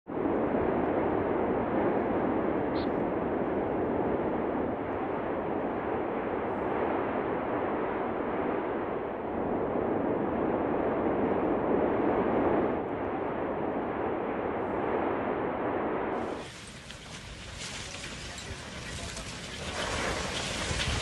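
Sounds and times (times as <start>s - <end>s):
volcano eruption rushing: 0.1s - 21.0s.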